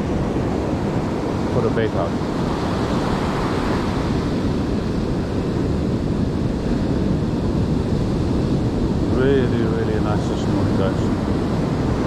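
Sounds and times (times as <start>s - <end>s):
ocean surf breaking on beach: 0.0s - 12.0s
wind rumbling on microphone: 0.0s - 12.0s.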